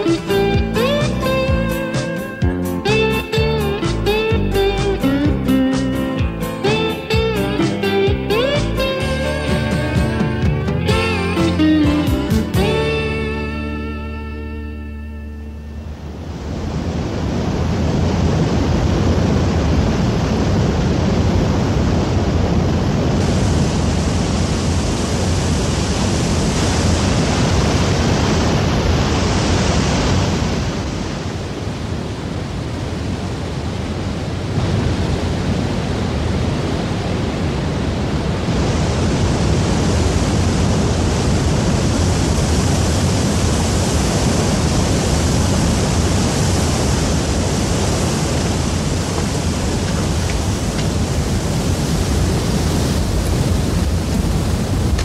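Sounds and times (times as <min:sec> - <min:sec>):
waterfall rushing: 0:00.0 - 0:05.1, 0:22.8 - 0:55.0.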